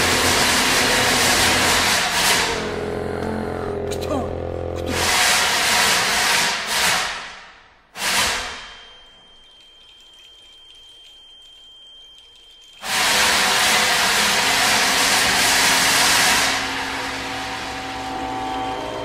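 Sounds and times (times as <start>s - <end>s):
faint high steady tone: 8.7s - 12.8s.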